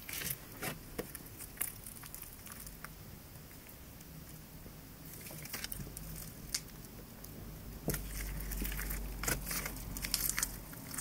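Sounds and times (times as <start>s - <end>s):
sticky slime crackling and popping: 0.0s - 3.0s, 5.0s - 11.0s.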